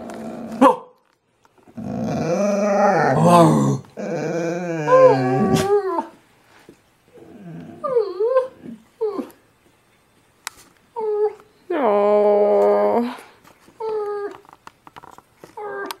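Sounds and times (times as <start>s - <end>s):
dog growling moans: 0.0s - 0.6s, 1.7s - 6.2s, 7.1s - 9.4s, 15.6s - 16.0s
dog whining: 1.8s - 6.2s, 7.1s - 9.4s, 11.0s - 11.4s, 13.8s - 14.5s, 15.5s - 16.0s.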